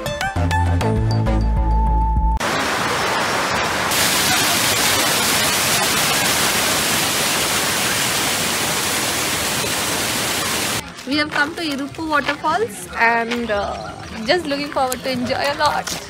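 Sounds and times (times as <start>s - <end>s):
waterfall rushing: 2.4s - 10.8s.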